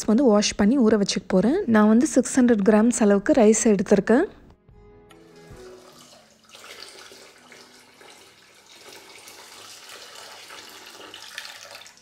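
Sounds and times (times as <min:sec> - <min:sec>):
water pouring into bowl of rice: 0:05.3 - 0:12.0.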